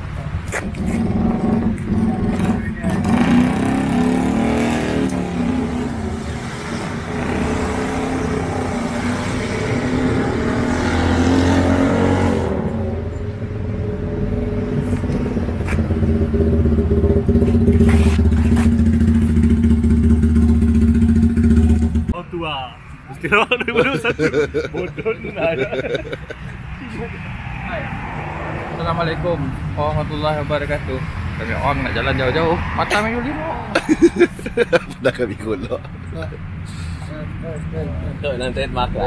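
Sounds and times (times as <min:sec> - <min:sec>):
motorcycle engines idling: 0:13.3 - 0:22.2.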